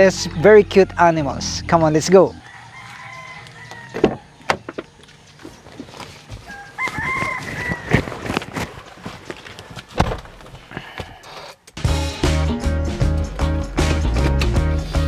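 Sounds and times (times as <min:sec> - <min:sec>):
rooster crowing: 0:02.2 - 0:04.6, 0:06.4 - 0:08.4
car door opening and shutting: 0:09.9 - 0:10.6.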